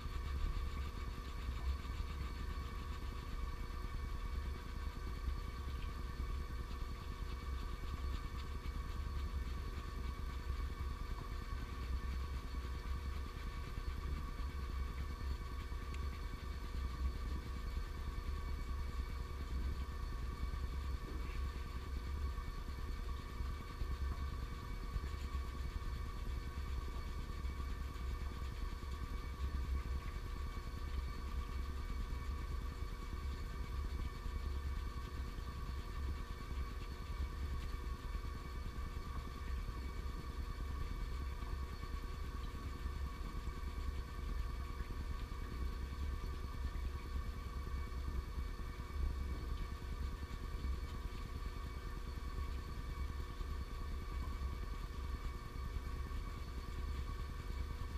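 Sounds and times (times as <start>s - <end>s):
low mechanical hum and rumble: 0.0s - 57.9s.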